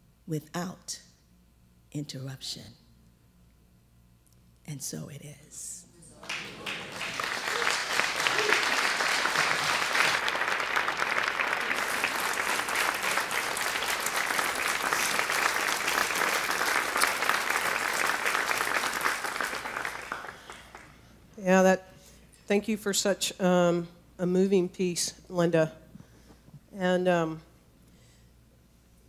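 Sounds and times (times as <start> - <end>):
audience applauding: 6.2 - 21.0.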